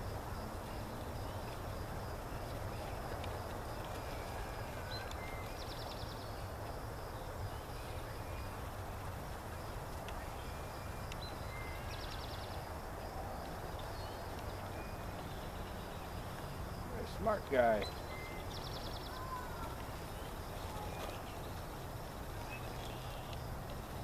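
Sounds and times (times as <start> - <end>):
small bird song with trill: 3.9 - 6.5, 10.2 - 12.7, 13.8 - 16.6, 17.2 - 21.8, 22.4 - 23.5.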